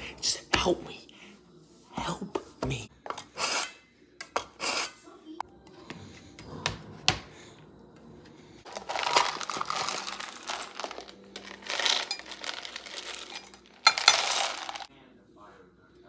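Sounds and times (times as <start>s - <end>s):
chips clattering: 8.7s - 14.9s
chocolate chips pouring: 8.7s - 14.9s.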